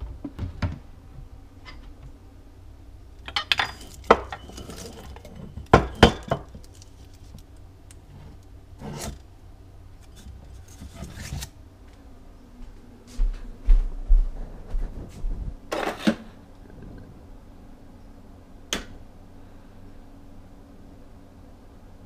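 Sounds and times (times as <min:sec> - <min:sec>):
ceramic mugs clinking: 0:03.3 - 0:06.6.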